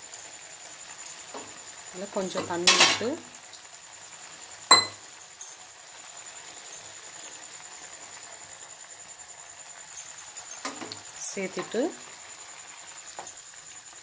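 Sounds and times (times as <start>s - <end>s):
gravy simmering hiss: 0.0s - 14.0s
metallic clink against pan: 2.3s - 3.3s, 4.7s - 5.6s.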